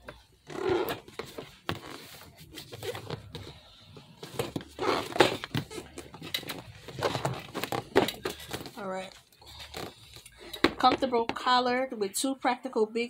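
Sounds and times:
cardboard box rustling and scraping: 0:00.6 - 0:10.0.

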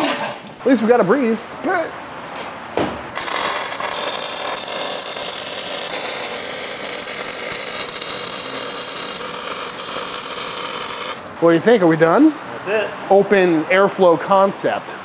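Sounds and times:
arc welding crackle and sizzle: 0:03.1 - 0:11.3.

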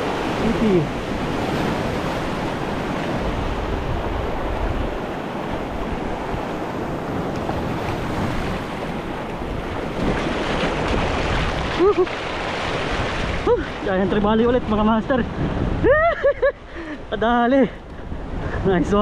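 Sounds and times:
surf breaking over rocks: 0:00.0 - 0:15.4
wind buffeting microphone: 0:00.0 - 0:19.0.

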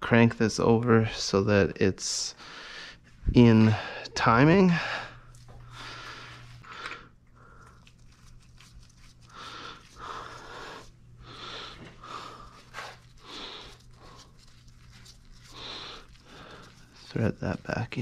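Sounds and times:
person breathing hard: 0:02.3 - 0:08.0, 0:09.2 - 0:14.5, 0:15.3 - 0:17.0.

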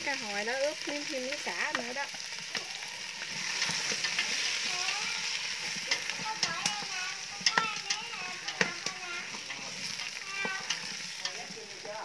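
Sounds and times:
fish sizzling in hot oil: 0:00.0 - 0:12.0
chopsticks clicking against pot: 0:05.8 - 0:11.5.

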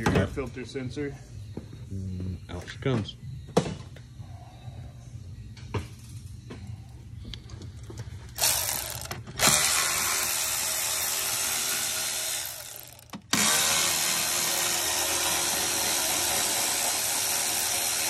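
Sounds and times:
power ratchet running: 0:08.4 - 0:18.0.

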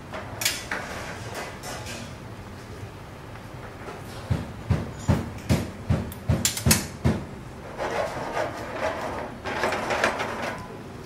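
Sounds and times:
pan scraping and rattling: 0:07.6 - 0:10.8.

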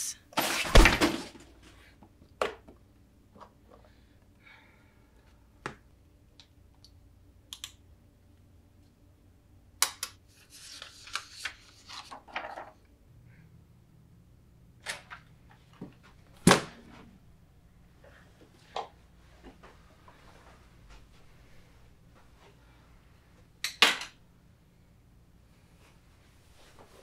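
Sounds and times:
paper rustling: 0:10.4 - 0:12.6.

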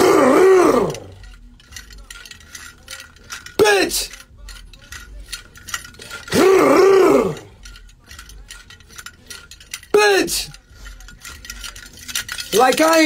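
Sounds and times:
man shouting a wavering yell: 0:00.0 - 0:01.2, 0:03.6 - 0:04.2, 0:06.2 - 0:07.6, 0:09.9 - 0:10.6.

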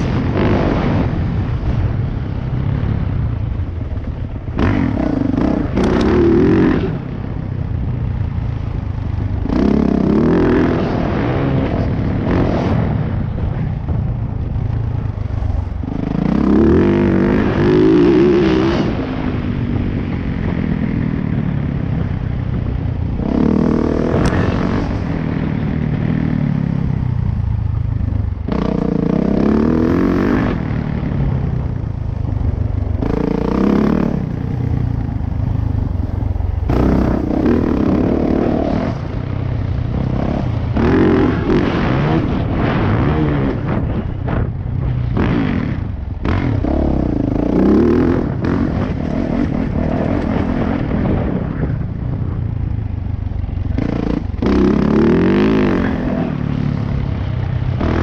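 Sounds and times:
dirt bike engine revving: 0:00.0 - 0:07.4, 0:08.2 - 0:51.8, 0:53.3 - 0:58.0.

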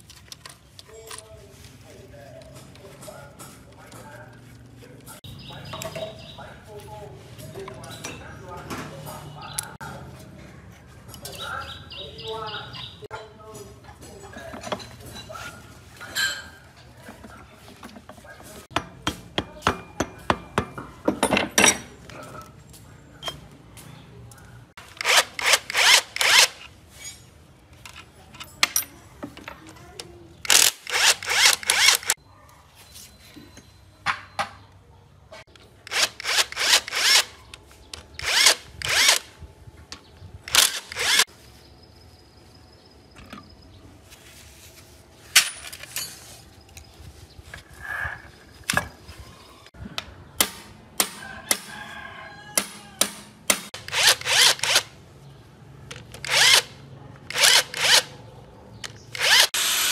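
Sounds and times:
impact driver bursts: 0:30.5 - 0:32.2, 0:38.2 - 0:39.2, 0:40.5 - 0:41.3, 0:52.7 - 0:54.9, 0:56.2 - 0:56.7, 0:59.1 - 0:59.9.

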